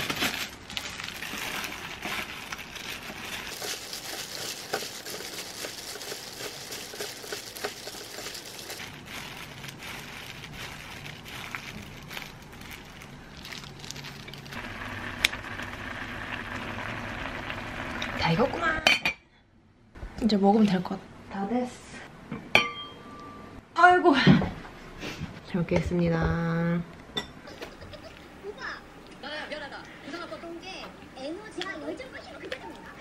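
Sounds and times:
plastic glove crinkling: 0.0 - 14.9.

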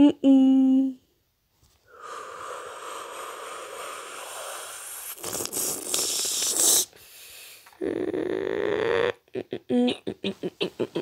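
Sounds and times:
hissing breath: 1.8 - 7.8
buzzing snore: 2.0 - 6.9, 7.7 - 9.2.

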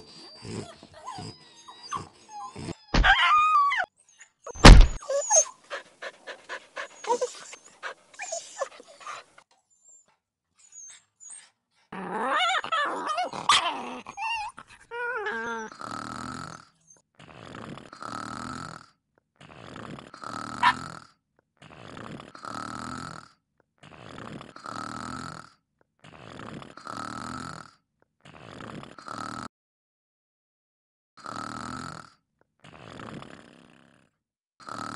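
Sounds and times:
dog snoring: 0.0 - 2.9, 11.9 - 29.5, 31.2 - 34.9
dog growling and whining: 0.0 - 18.0, 19.4 - 21.0
dog sniffing: 4.5 - 9.3.

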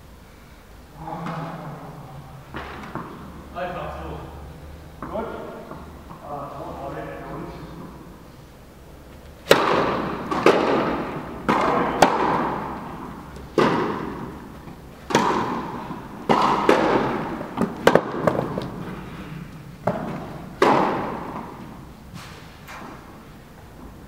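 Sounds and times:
tennis ball bouncing: 2.5 - 3.4, 5.0 - 6.2, 9.4 - 21.9
tennis racket strikes: 9.4 - 23.0.

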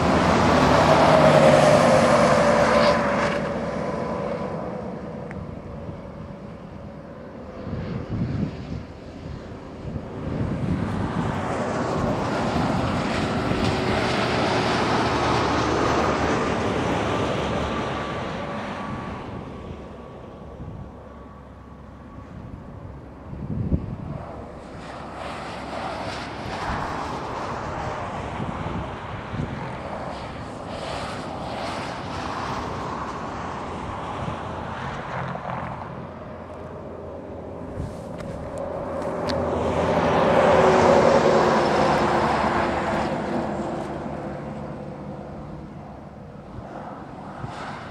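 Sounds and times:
wind on microphone: 0.0 - 21.4, 22.1 - 47.9
road traffic: 0.0 - 47.9
vehicle passing: 0.0 - 47.9.

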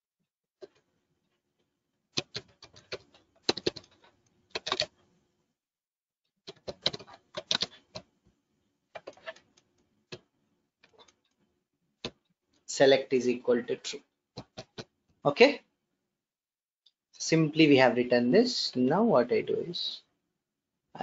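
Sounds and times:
computer keyboard typing: 2.2 - 4.9, 6.5 - 8.1, 9.0 - 11.2, 14.4 - 14.9.

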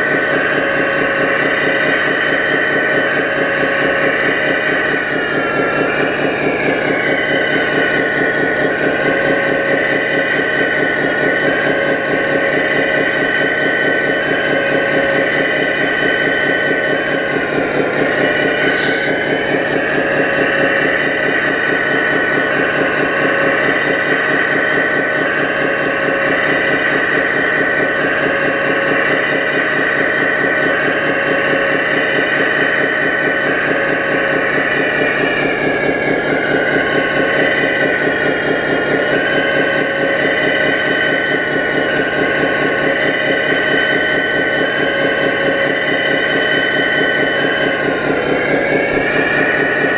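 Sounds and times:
model excavator motor whine: 0.0 - 49.9.

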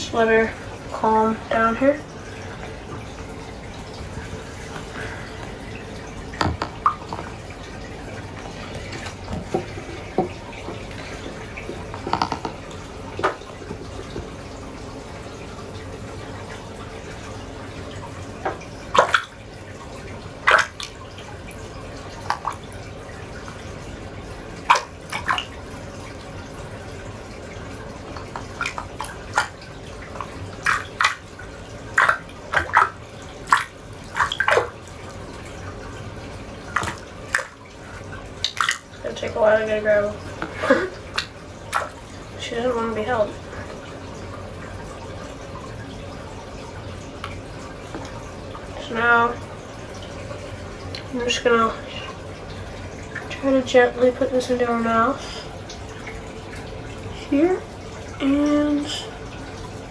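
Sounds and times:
water splashing in tub: 0.0 - 59.9.

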